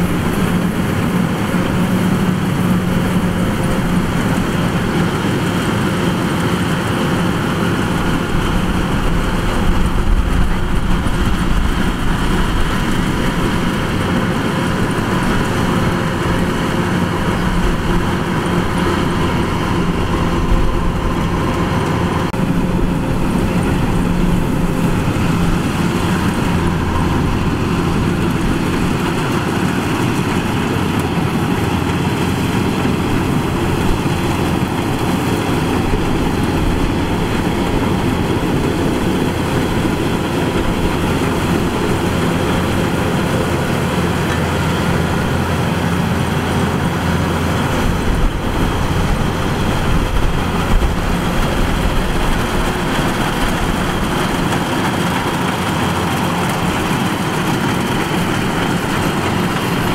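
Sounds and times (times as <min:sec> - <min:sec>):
combine harvester running: 0:00.0 - 0:59.9.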